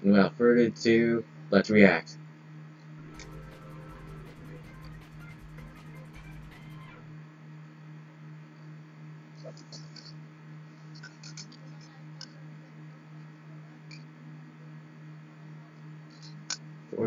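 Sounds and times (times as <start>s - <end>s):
low hum: 3.0s - 7.1s.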